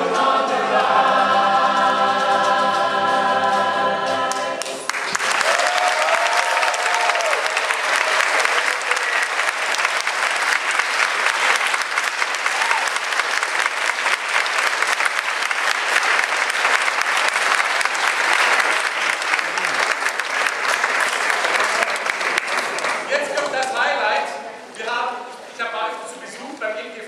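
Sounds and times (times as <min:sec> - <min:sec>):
audience applauding: 0:04.3 - 0:24.3.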